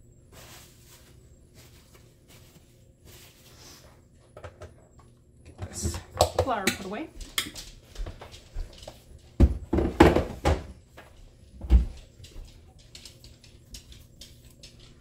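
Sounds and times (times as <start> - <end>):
plastic container knocking and thudding: 9.4 - 10.7.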